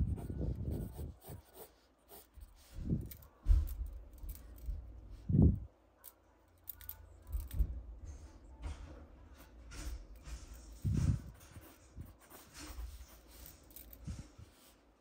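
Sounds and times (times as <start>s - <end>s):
pencil scratching on paper: 0.0s - 2.7s, 9.4s - 14.8s.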